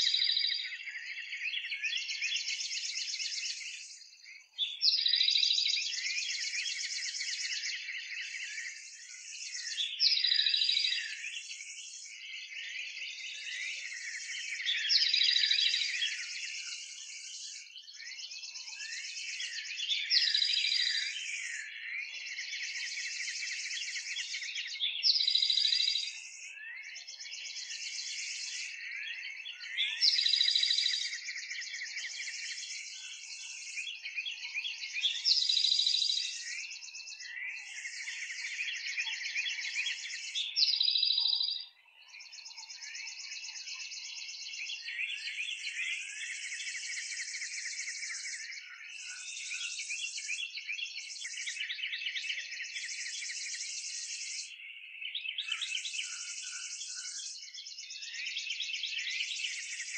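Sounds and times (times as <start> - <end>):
loud bird song phrase: 0.0 - 59.9
many birds chirping: 0.0 - 59.9.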